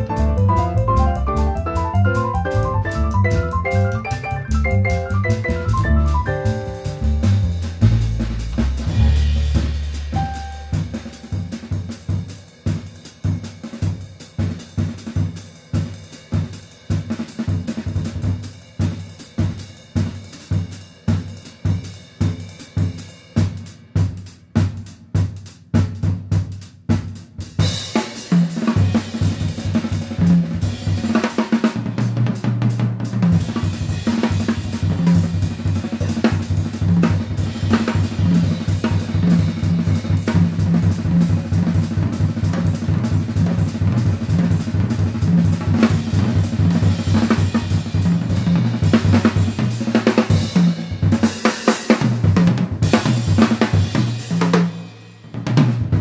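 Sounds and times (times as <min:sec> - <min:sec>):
double bass line: 0:00.0 - 0:11.6
jazz band playing swing: 0:00.0 - 0:12.3, 0:28.2 - 0:51.3
drum kit: 0:00.0 - 0:56.0.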